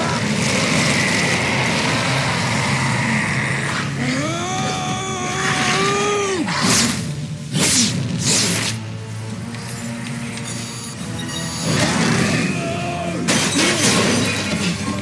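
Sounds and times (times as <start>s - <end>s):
man yelling: 4.1s - 6.5s.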